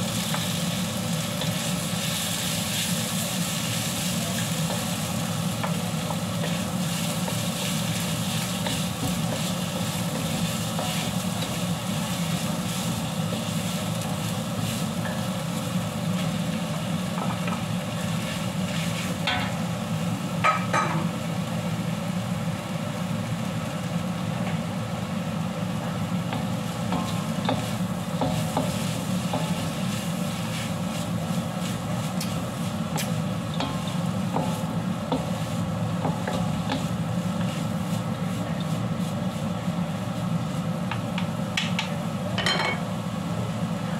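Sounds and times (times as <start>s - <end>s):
food sizzling: 0.0s - 43.6s
steady low hum: 0.0s - 43.9s
wooden spatula scraping wok: 1.2s - 15.6s, 17.9s - 19.2s, 26.3s - 40.7s.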